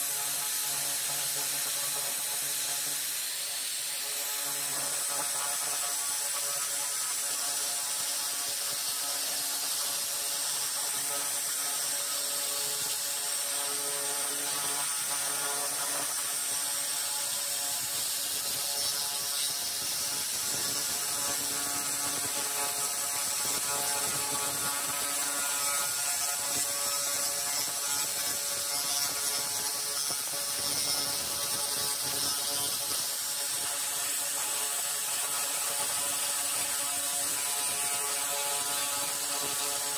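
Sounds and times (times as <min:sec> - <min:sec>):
sizzling hiss: 0:00.0 - 0:07.1, 0:15.5 - 0:34.2
laser cleaner buzzing: 0:00.0 - 0:39.9.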